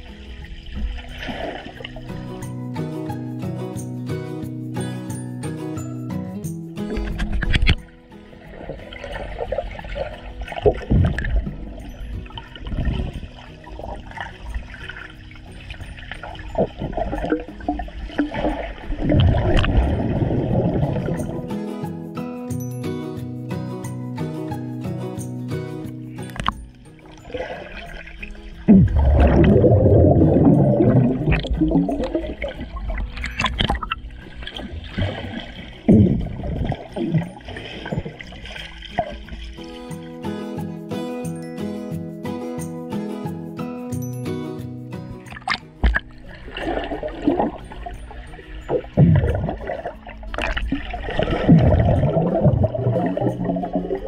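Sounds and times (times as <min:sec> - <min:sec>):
underwater sloshing and bubbling: 0:00.0 - 0:02.4, 0:06.8 - 0:21.6, 0:26.2 - 0:40.2, 0:45.3 - 0:54.0.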